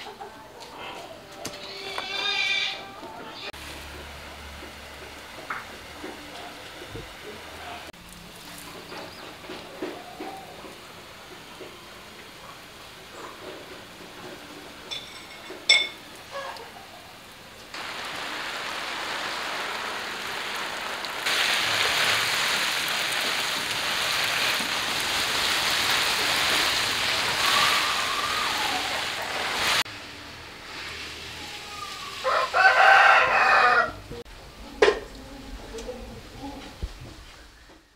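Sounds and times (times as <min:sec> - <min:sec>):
water spraying from a hose: 0:03.6 - 0:33.8
rooster crowing: 0:27.2 - 0:29.4, 0:31.6 - 0:34.1.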